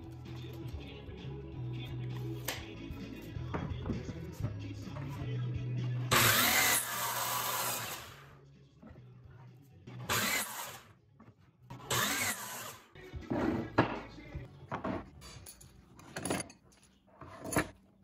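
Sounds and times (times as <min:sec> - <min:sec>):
background music: 0:00.0 - 0:17.7
miter saw cutting wood: 0:06.1 - 0:08.2, 0:10.1 - 0:10.8, 0:11.9 - 0:12.8.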